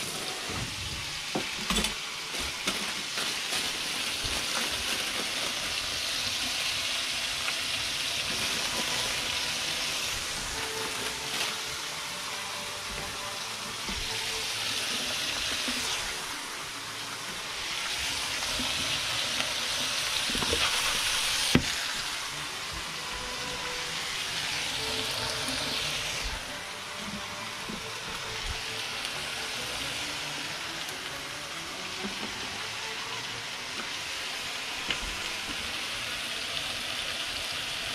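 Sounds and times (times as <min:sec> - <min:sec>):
fish sizzling in a frying pan: 0:00.0 - 0:37.9.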